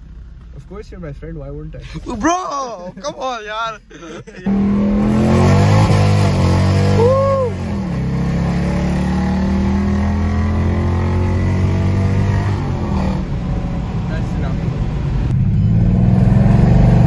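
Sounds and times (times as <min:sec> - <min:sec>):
car engine droning: 0:00.0 - 0:17.0
rising and falling tone: 0:04.5 - 0:13.2.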